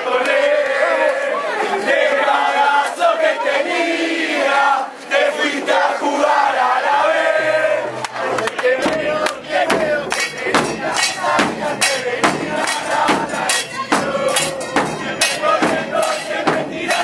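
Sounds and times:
crowd chanting: 0.0 - 17.0
sharp rhythmic beats: 8.6 - 17.0.

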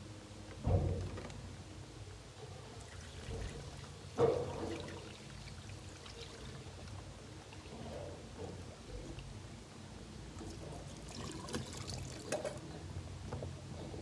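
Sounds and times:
water pouring: 2.8 - 8.2, 10.4 - 12.6.

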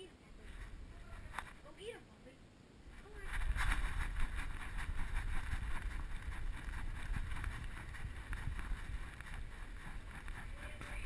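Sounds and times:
camera rumbling and rustling: 0.4 - 1.8, 2.9 - 11.0
light irregular taps: 3.3 - 11.0.

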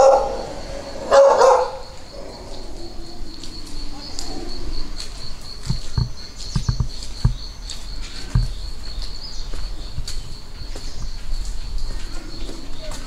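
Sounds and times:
footsteps on wet mud: 3.3 - 13.0.

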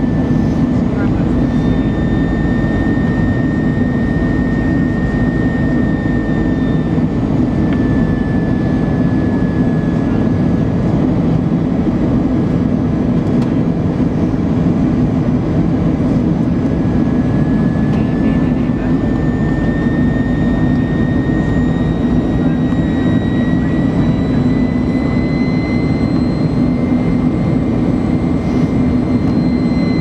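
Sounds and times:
high engine whine: 0.0 - 30.0
jet engine and airflow roar: 0.0 - 30.0.

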